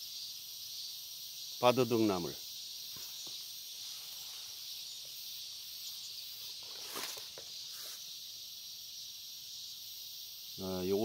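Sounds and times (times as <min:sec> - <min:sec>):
insects chirring: 0:00.0 - 0:11.0
rustling of stems: 0:06.4 - 0:08.1.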